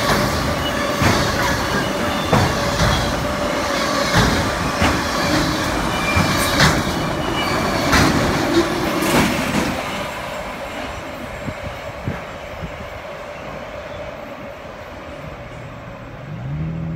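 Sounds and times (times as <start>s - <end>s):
wheels clicking over rail joints: 0.0s - 10.1s
train rumble: 0.0s - 16.9s.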